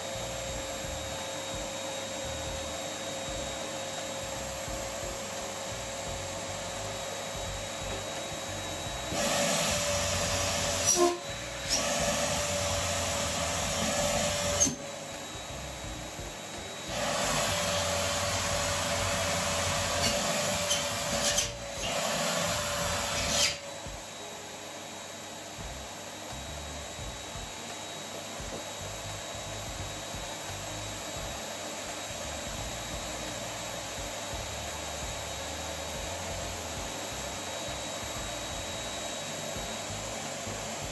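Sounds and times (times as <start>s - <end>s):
vacuum cleaner running: 0.0s - 40.9s.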